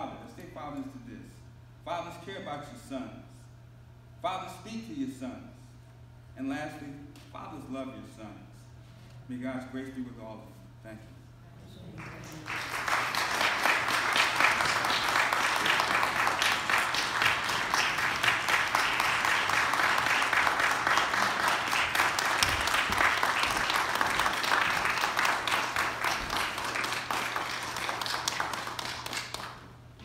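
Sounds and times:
crowd clapping: 12.0s - 30.0s.

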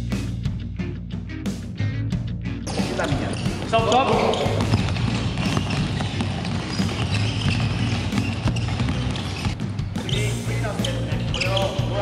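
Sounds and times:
basketballs bouncing on wood floor: 2.7s - 12.0s.

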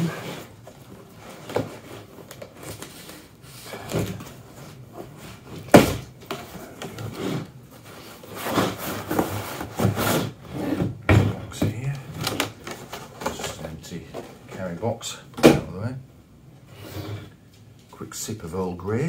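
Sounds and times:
cardboard box scraping: 7.0s - 10.9s.

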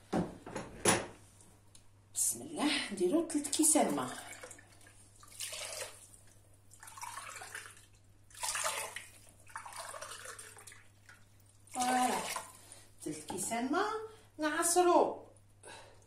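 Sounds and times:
water pouring into steel pot: 3.5s - 12.6s
water pouring into glass: 6.8s - 10.8s.

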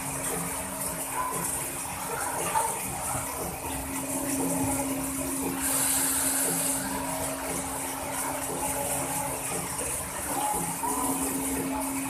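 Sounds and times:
machinery hum: 0.0s - 12.0s.

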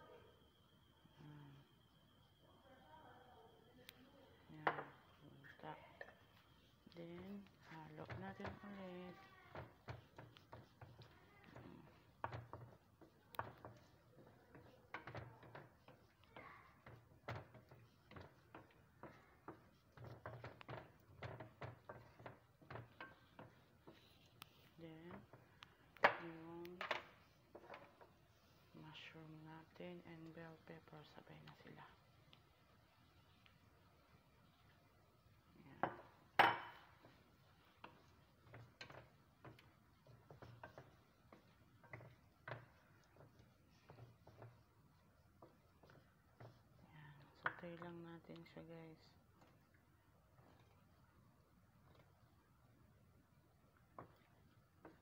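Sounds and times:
wooden spatula scraping frying pan: 6.0s - 25.5s, 36.0s - 46.8s.

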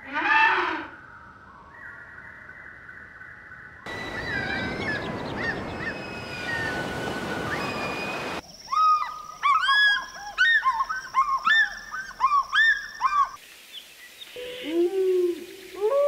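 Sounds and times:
whistled seabird calls: 3.9s - 13.4s
steady rushing hiss: 13.4s - 16.0s.

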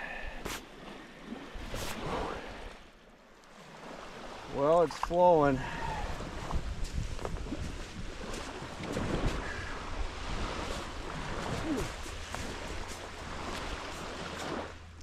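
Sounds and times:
small waves washing on shore: 0.0s - 15.0s
wind buffeting microphone: 5.6s - 14.7s.

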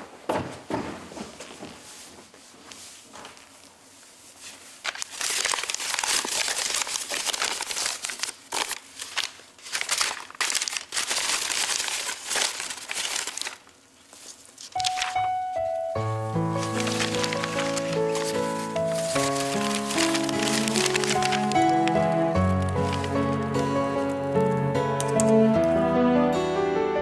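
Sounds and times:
paper napkins crinkling: 4.2s - 25.3s.

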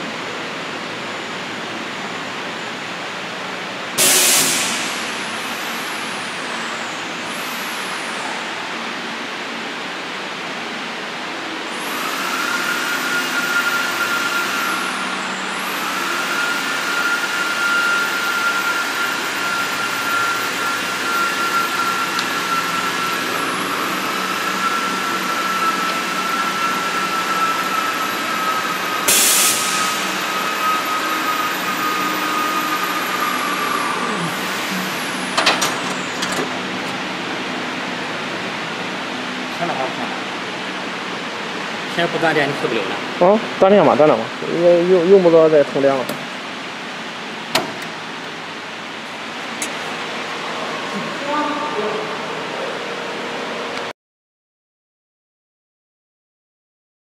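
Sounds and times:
burst of hiss: 4.0s - 5.2s, 29.0s - 30.2s
router spindle whine: 11.7s - 37.9s
lower whining tone: 12.0s - 38.9s.

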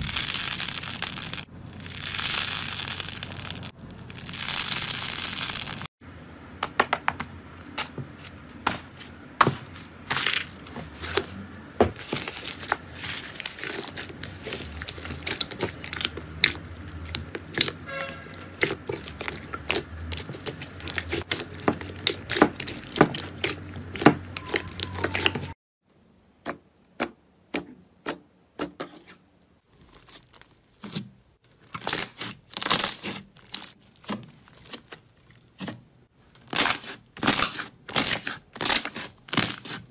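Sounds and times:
crackling slime being kneaded: 0.0s - 5.9s, 12.0s - 25.6s, 29.6s - 39.9s.

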